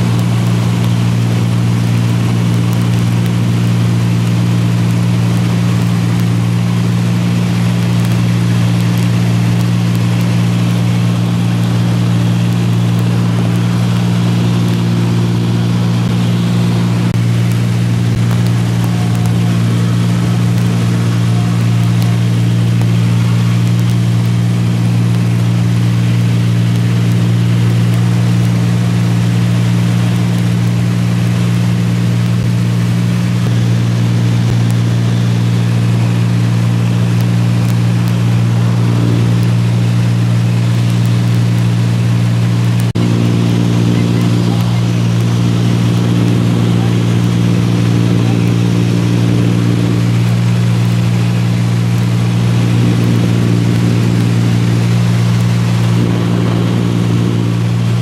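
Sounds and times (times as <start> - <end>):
propeller aircraft engine droning: 0.0 - 58.0
rush of air noise: 0.0 - 58.0.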